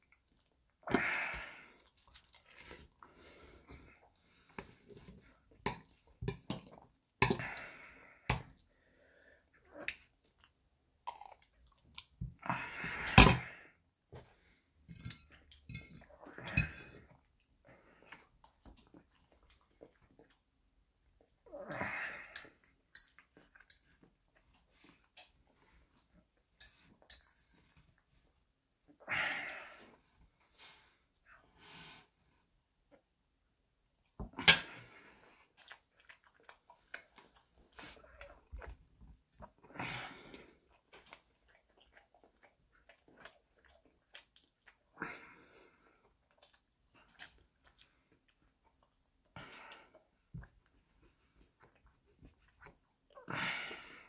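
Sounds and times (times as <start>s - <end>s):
chewing and mouth sounds: 0.0s - 7.6s, 9.5s - 12.5s, 14.9s - 28.1s, 33.9s - 53.4s.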